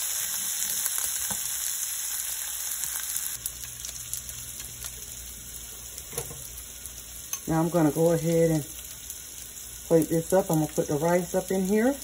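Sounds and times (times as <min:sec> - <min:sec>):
food sizzling in a pan: 0:00.0 - 0:12.0.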